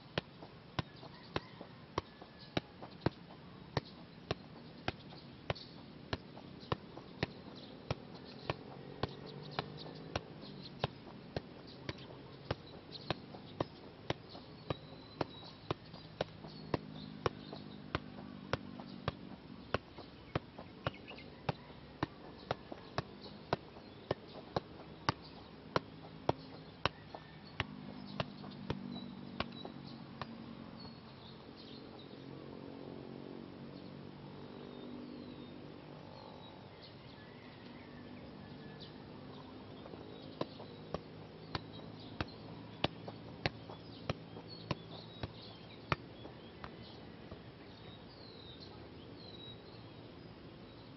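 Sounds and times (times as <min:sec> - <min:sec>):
football taps on foot: 0:00.2 - 0:30.9, 0:39.8 - 0:47.4.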